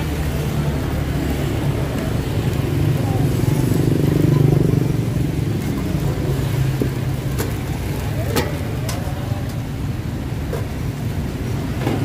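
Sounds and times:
motorbike traffic rumble: 0.0 - 12.0.

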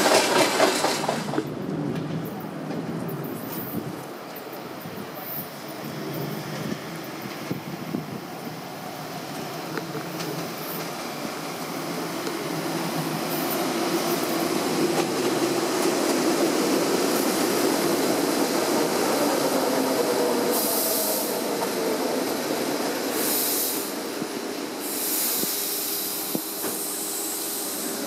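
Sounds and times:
train wheels rumbling on rails: 0.0 - 28.0
compressed air hissing: 20.4 - 21.6, 22.8 - 28.0.

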